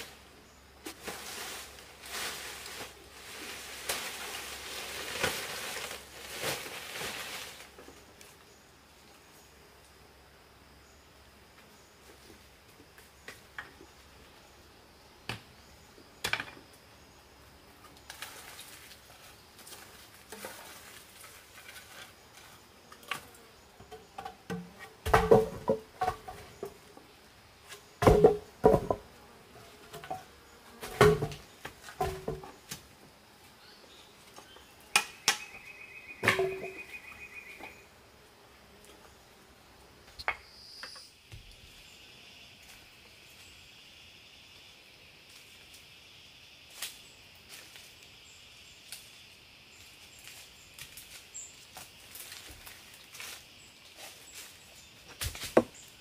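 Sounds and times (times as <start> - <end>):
faint insect buzz: 0.0 - 56.0
objects knocking and clattering: 23.9 - 26.8, 28.0 - 29.0, 30.9 - 32.6, 36.2 - 36.8.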